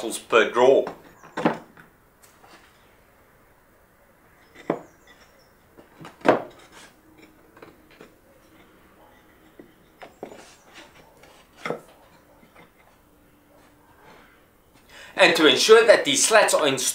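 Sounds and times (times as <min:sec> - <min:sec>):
wooden slats knocking on wood: 0:06.0 - 0:06.5.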